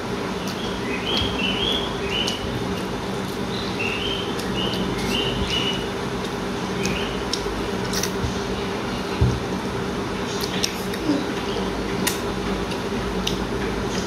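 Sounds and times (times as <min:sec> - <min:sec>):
steady low hum: 0:00.0 - 0:14.0
small bird chirping: 0:00.4 - 0:02.5, 0:03.4 - 0:05.9.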